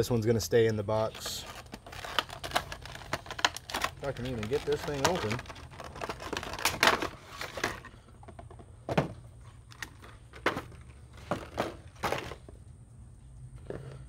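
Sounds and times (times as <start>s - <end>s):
plastic packaging crackling: 1.0s - 8.0s.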